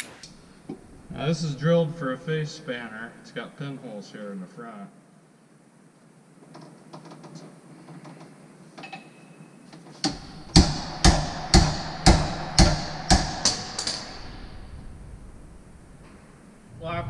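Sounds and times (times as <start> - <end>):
hammer blows on metal wrench: 10.0 - 14.8.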